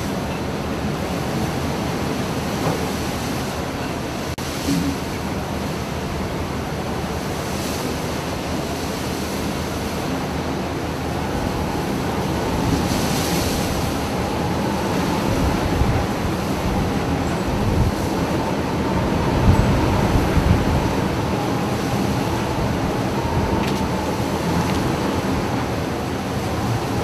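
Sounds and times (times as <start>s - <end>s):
water rushing: 0.0s - 27.0s
wind on microphone: 11.0s - 27.0s.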